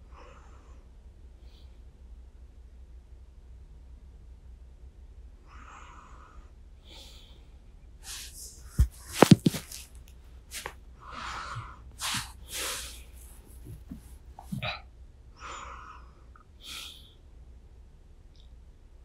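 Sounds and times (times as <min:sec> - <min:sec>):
person breathing and sighing: 0:06.8 - 0:09.8, 0:10.6 - 0:14.8.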